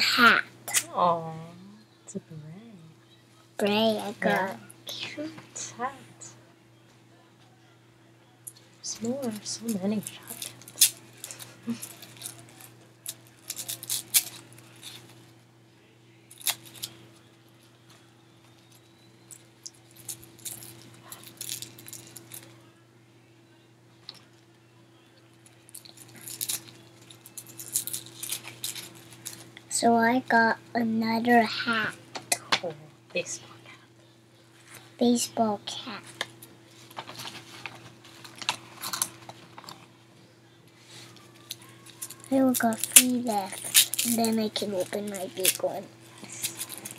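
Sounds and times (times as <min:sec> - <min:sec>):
faint steady hum: 0:00.0 - 0:46.9
plastic packet crinkling: 0:09.1 - 0:15.2, 0:16.3 - 0:17.0, 0:18.6 - 0:22.5, 0:25.7 - 0:29.5, 0:36.8 - 0:39.8, 0:41.3 - 0:46.9.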